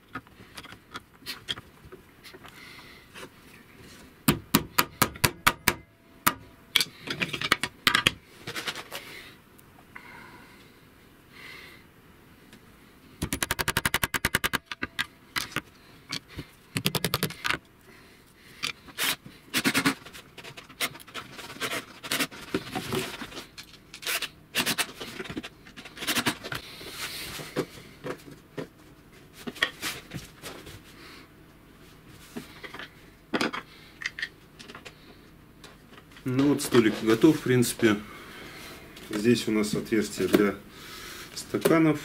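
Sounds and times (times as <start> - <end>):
clicks and knocks of handled parts: 0.0 - 2.6, 4.8 - 9.0, 13.2 - 17.8, 18.6 - 26.6, 32.4 - 35.0.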